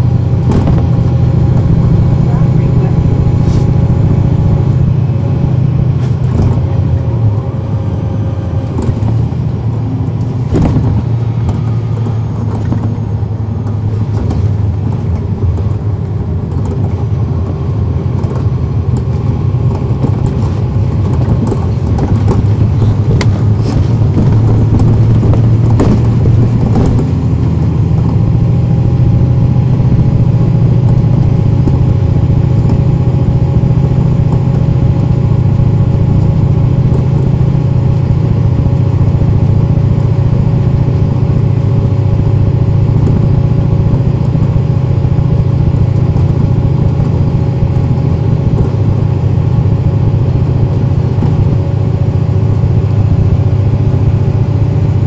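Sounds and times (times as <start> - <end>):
bus diesel engine drone: 0.0 - 55.0
clicks and rattles: 18.1 - 28.2.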